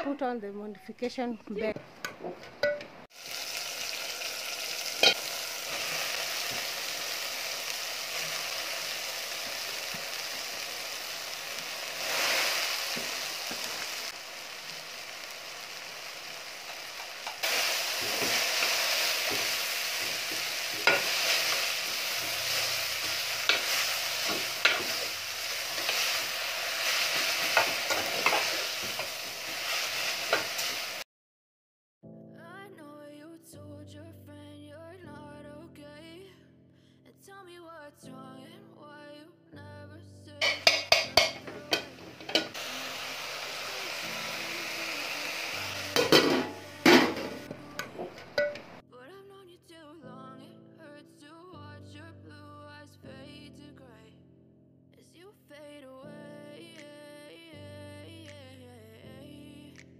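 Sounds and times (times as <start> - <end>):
kale sizzling in a pot: 3.1 - 31.0, 40.4 - 48.8
spoon stirring and clicking on pot: 40.4 - 42.5.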